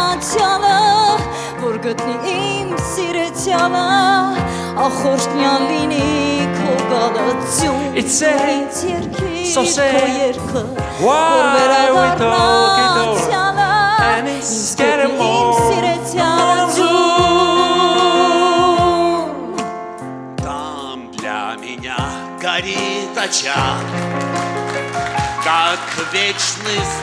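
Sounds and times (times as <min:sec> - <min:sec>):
woman singing: 0:00.0 - 0:19.7
backing band playing: 0:00.0 - 0:27.0.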